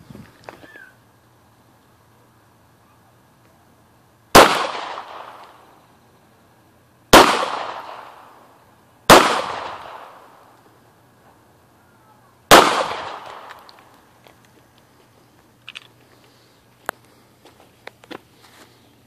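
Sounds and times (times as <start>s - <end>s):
pistol shots with echo: 4.3s - 5.6s, 7.1s - 8.4s, 9.1s - 10.4s, 12.5s - 13.8s.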